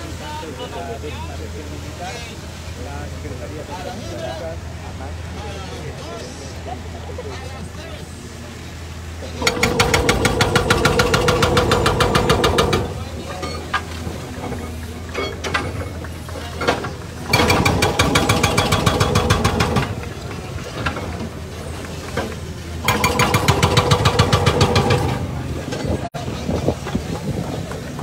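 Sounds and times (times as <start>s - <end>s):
diesel engine running: 0.0s - 28.0s
hydraulic breaker hammering on metal: 9.4s - 13.8s, 16.6s - 20.1s, 22.8s - 26.0s.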